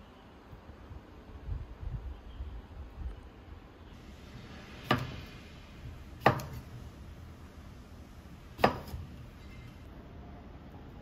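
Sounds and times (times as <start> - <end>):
knife chopping on wooden board: 4.8 - 5.3, 6.2 - 6.7, 8.6 - 9.2.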